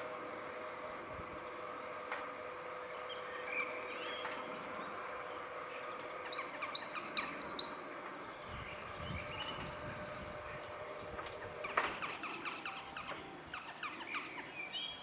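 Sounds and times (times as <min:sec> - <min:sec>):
great tit singing: 0:05.8 - 0:08.0.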